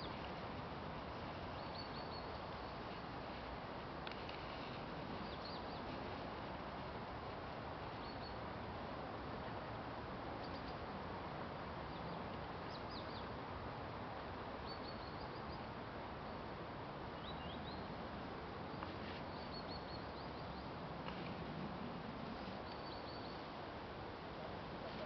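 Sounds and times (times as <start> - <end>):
songbird chirping: 1.5 - 3.1, 22.4 - 23.5.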